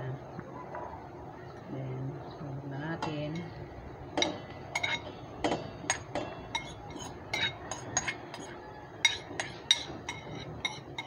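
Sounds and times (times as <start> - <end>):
ceramic bowl and spoon clinking: 4.2 - 11.0.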